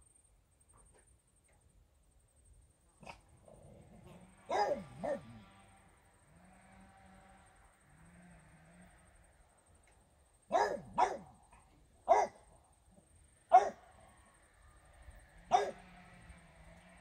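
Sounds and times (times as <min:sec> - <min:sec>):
dog barking: 0:04.4 - 0:05.4, 0:10.5 - 0:12.4, 0:13.5 - 0:13.8, 0:15.5 - 0:15.9.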